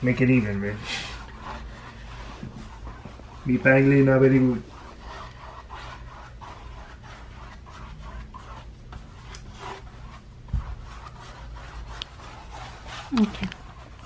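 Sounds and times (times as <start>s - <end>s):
paintbrush scrubbing canvas: 0.0s - 14.0s.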